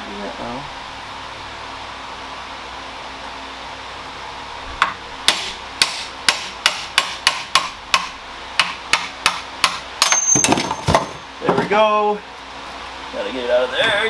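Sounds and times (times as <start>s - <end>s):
hammer striking metal: 4.8s - 11.3s.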